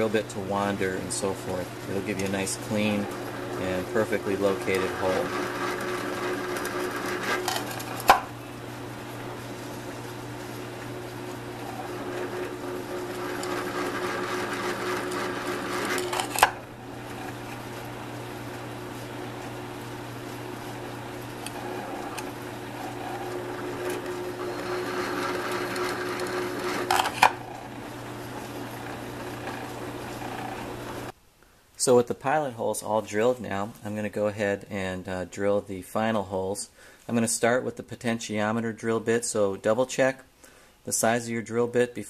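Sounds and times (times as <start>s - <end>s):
drill press motor running: 1.8s - 31.1s
drill bit cutting aluminum: 2.7s - 8.2s, 11.6s - 17.5s, 21.4s - 27.8s.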